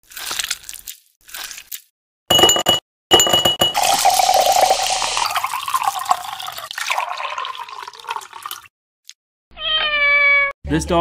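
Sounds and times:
drink trickling into glass: 3.2 - 8.7
soda poured into glass over ice: 3.8 - 8.7.

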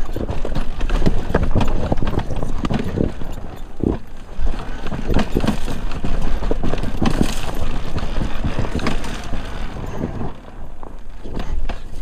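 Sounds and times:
dirt bike wheels knocking on stones: 0.0 - 9.8.

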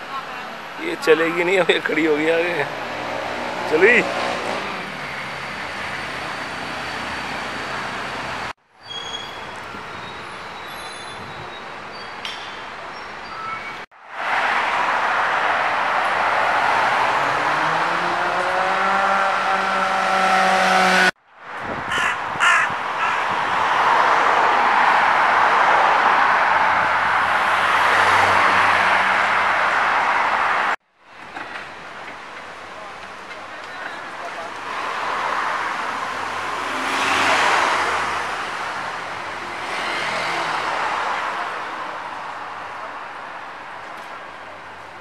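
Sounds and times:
street traffic: 0.0 - 45.0
crow cawing: 21.9 - 23.3.

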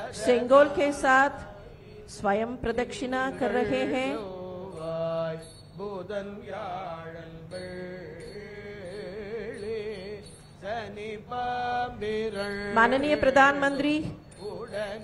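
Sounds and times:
priests chanting a hymn: 0.0 - 2.2, 3.1 - 10.1.

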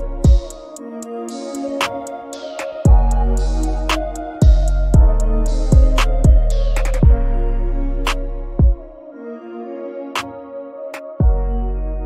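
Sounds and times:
electronic music with beat: 0.0 - 9.1.

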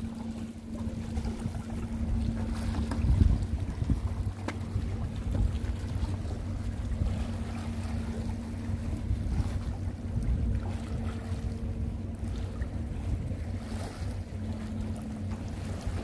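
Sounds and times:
steady low hum: 0.0 - 16.0
wind buffeting microphone: 0.0 - 16.0.

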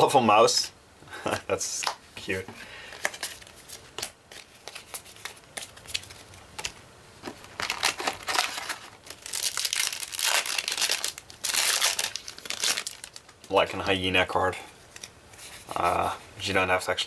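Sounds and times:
foil wrapper crinkling and tearing: 7.3 - 13.6.

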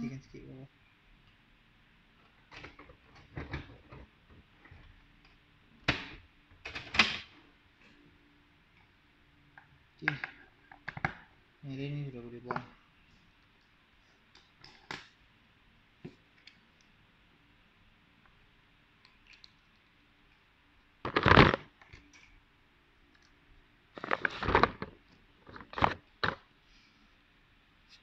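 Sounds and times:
paper rustling and crinkling: 24.0 - 26.4.

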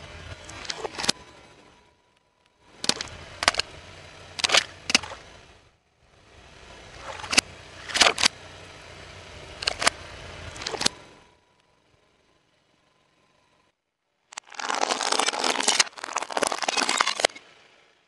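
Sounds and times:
car rumbling: 0.0 - 13.6.

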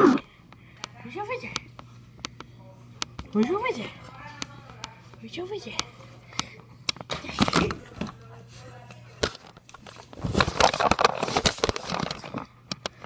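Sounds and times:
microphone crackling and rustling: 9.8 - 12.5.

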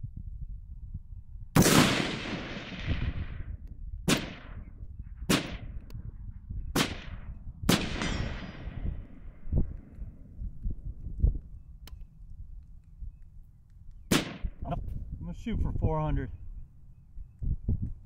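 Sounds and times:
rifle shots with echo: 1.6 - 6.0, 6.7 - 10.3, 14.1 - 14.8.

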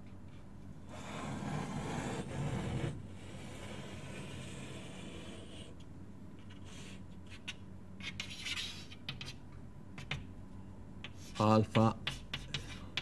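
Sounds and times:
faint electrical hum: 0.0 - 13.0
pen scratching on paper: 0.9 - 5.7.

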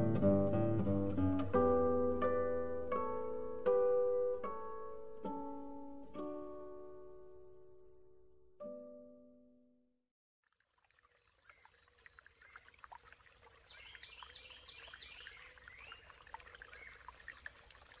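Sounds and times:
stream water trickling: 10.4 - 18.0
bird chirping: 13.6 - 17.2.

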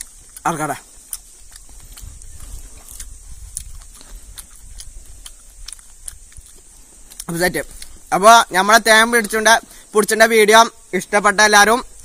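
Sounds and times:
small clicks and ticks: 0.0 - 8.0
steady high-pitched hiss: 0.0 - 12.0
wind rumble on microphone: 1.2 - 8.1.

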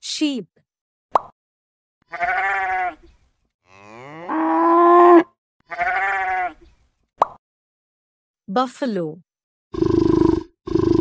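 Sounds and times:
cow mooing: 3.6 - 6.5.

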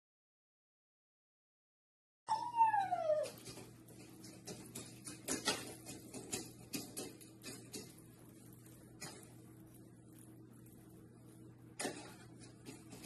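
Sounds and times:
cat meowing: 2.3 - 3.4
faint clicks and taps: 3.2 - 13.0
steady low hum: 3.4 - 13.0.

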